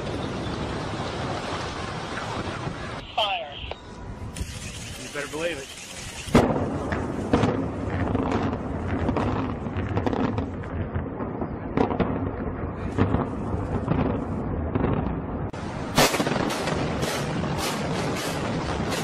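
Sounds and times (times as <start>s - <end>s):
explosive cracks and bangs: 4.6s - 19.0s.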